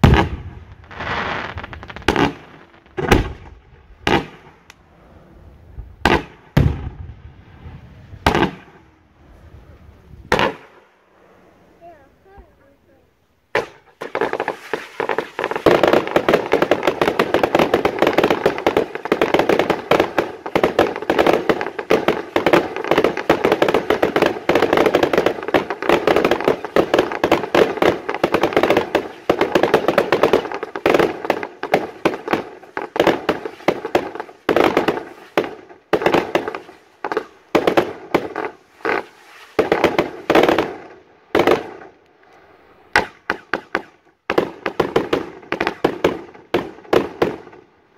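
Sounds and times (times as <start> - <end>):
fireworks shots and bursts: 0.0 - 4.9, 5.7 - 9.2, 10.2 - 12.8, 13.5 - 47.8.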